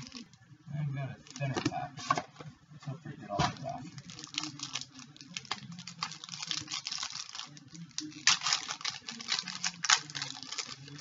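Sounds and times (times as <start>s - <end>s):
foil wrapper crinkling: 3.9s - 11.0s.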